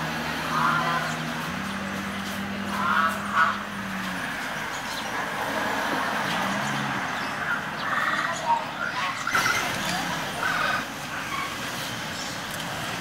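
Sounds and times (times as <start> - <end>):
car engine humming: 0.0 - 13.0
crow cawing: 2.7 - 3.7.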